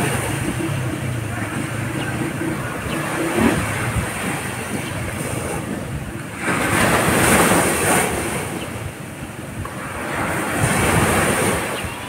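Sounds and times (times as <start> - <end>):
small waves breaking on sand: 0.0 - 12.0
wind on microphone: 0.0 - 12.0.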